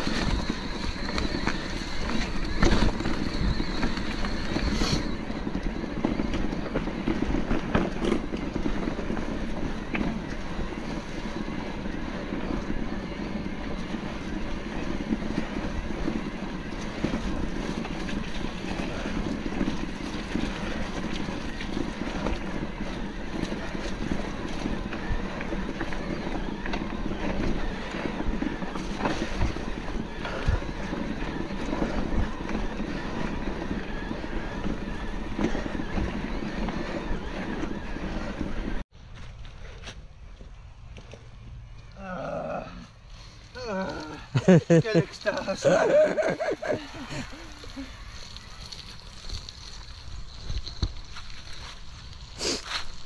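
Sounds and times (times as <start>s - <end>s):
bike knocking and rattling: 0.0s - 41.9s, 43.2s - 53.0s
bike tyres rumbling: 0.0s - 53.0s.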